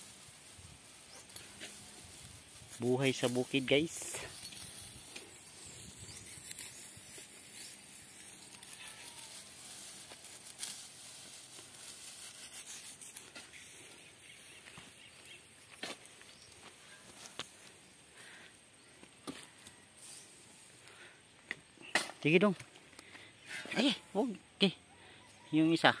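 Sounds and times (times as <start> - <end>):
grass rustling and tearing: 0.0 - 17.9.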